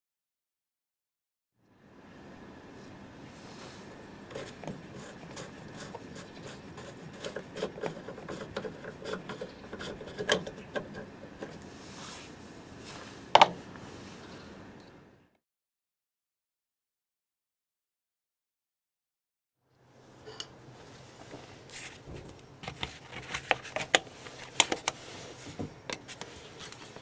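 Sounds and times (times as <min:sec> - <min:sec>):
plastic cap unscrewing: 0:04.3 - 0:11.6, 0:22.6 - 0:25.0.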